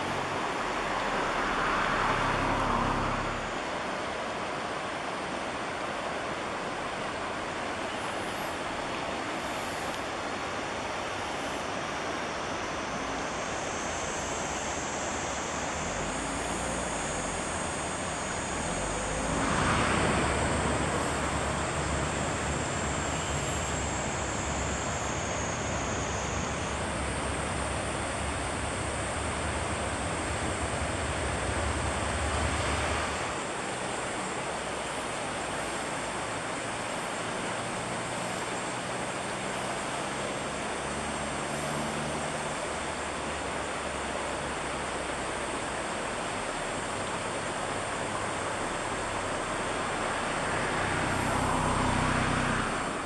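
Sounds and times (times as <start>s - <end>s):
river water over rocks: 0.0s - 53.0s.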